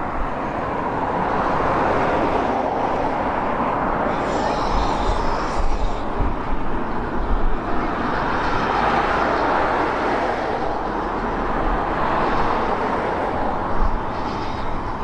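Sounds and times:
steam hissing: 4.0s - 6.8s.

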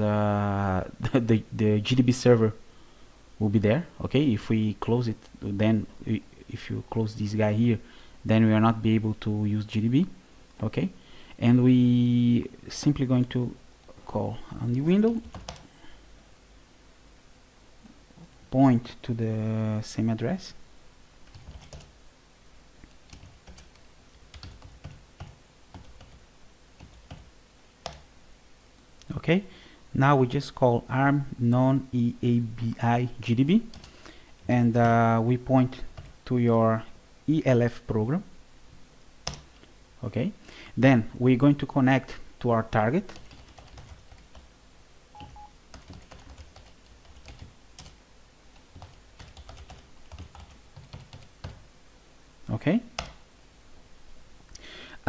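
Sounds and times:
short double beep: 45.2s - 45.5s.

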